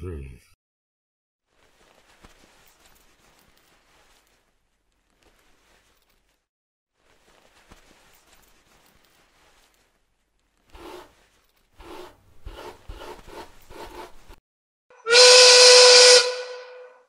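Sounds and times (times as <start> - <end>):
box scraping on wooden floor: 10.7 - 14.4.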